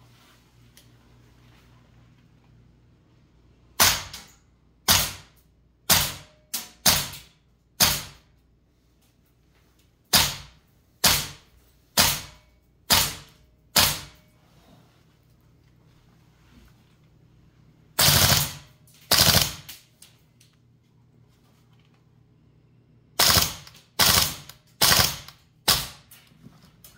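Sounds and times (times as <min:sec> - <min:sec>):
airsoft rifle shots: 0:03.8 - 0:08.3, 0:10.1 - 0:14.2, 0:18.0 - 0:19.8, 0:23.2 - 0:26.1.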